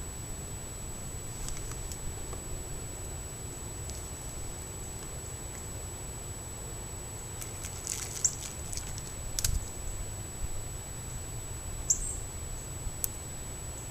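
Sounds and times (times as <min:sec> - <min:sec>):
low hiss: 0:00.0 - 0:13.9
deer chewing and crunching: 0:07.4 - 0:09.2.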